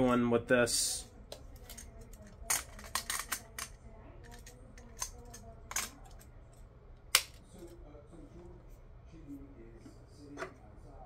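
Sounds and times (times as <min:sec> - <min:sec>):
plastic toy parts clicking: 0:01.6 - 0:06.2.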